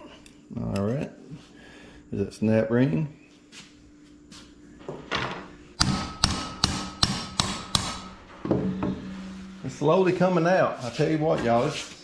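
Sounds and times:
hammer blows on metal cylinder: 0:05.8 - 0:10.4.

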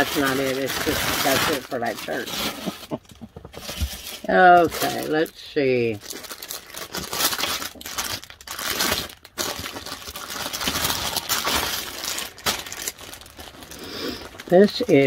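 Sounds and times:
packaging and fabric rustling: 0:00.0 - 0:15.0.

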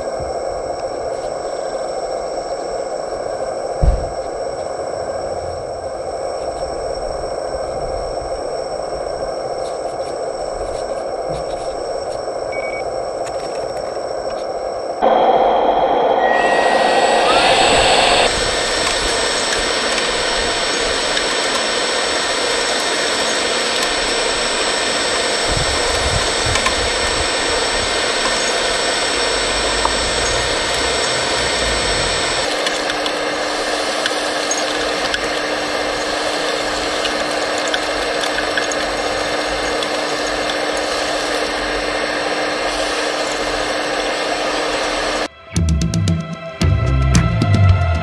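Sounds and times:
suction blower whining: 0:15.0 - 0:46.0.

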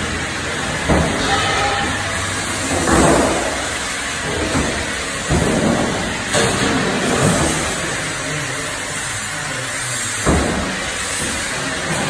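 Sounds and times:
sheet metal machine running: 0:00.0 - 0:12.0
heavy machine knocks: 0:00.8 - 0:06.7.

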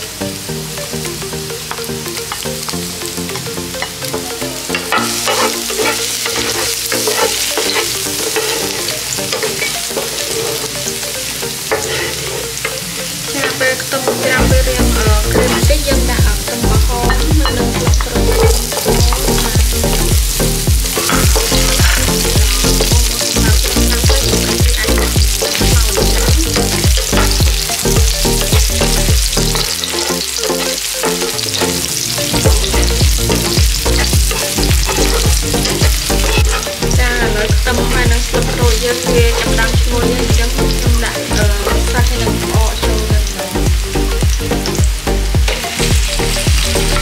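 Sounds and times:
food sizzling in oil: 0:00.0 - 0:47.0
wooden spatula scraping pan: 0:04.8 - 0:15.8, 0:17.8 - 0:30.8, 0:32.4 - 0:36.9
background music with bass beat: 0:14.4 - 0:47.0.

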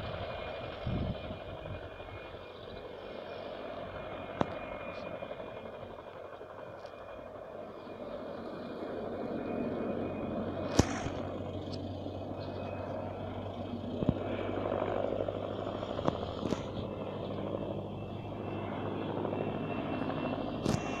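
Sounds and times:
distant helicopter drone: 0:00.0 - 0:21.0
sharp clicks: 0:10.7 - 0:11.8.

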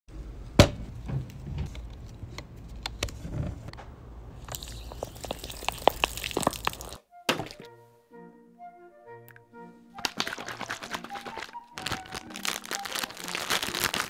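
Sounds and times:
plastic bottle clicks and crinkles: 0:04.5 - 0:07.7, 0:10.0 - 0:14.0.

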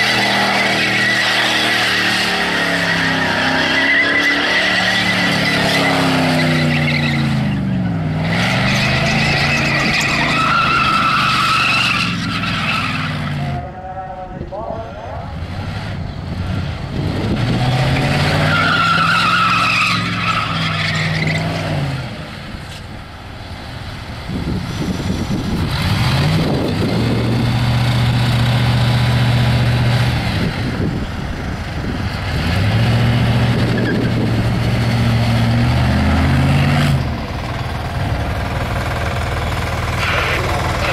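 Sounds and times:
car engine at high revs: 0:00.0 - 0:13.6, 0:15.3 - 0:22.9, 0:23.9 - 0:40.9
tyres squealing: 0:00.0 - 0:13.6, 0:18.0 - 0:21.8.

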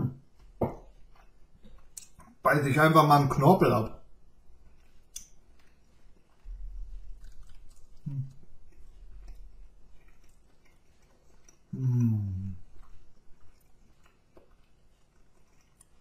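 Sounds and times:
man chewing cartilage: 0:00.2 - 0:02.4, 0:04.4 - 0:16.0
wet mouth clicks: 0:05.0 - 0:05.8
man humming: 0:11.8 - 0:12.6.

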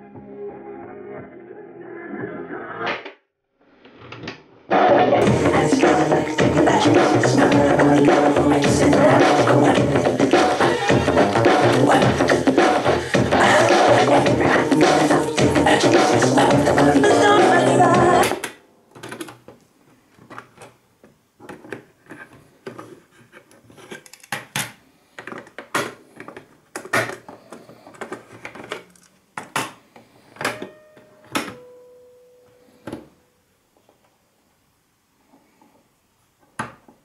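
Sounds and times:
music from boombox: 0:04.8 - 0:18.5.

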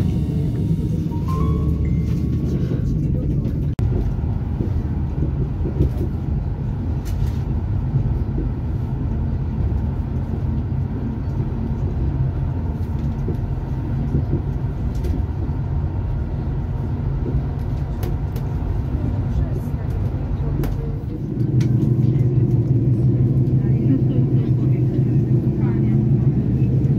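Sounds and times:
train rumbling: 0:00.0 - 0:26.9.

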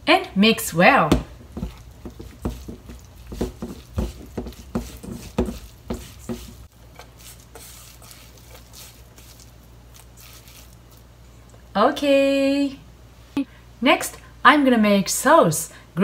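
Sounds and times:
hand kneading meat in a bowl: 0:00.8 - 0:11.2.

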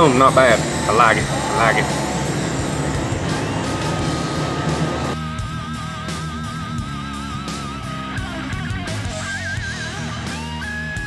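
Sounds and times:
sustained wavering note: 0:00.0 - 0:05.2
background music: 0:00.0 - 0:11.0.

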